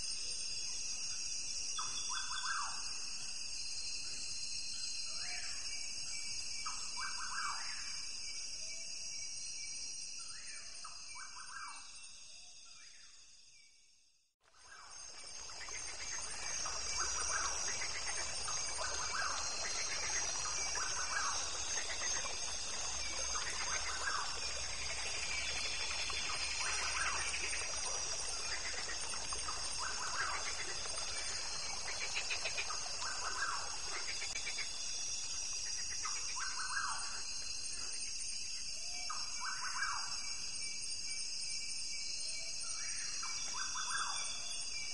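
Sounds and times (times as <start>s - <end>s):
trilled bird calls: 15.1s - 34.8s.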